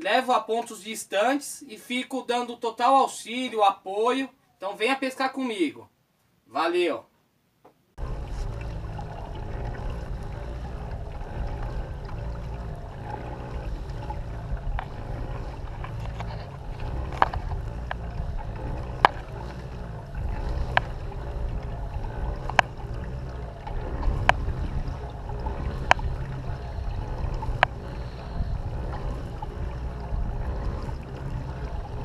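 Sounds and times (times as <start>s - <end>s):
low steady rumble: 8.0s - 32.0s.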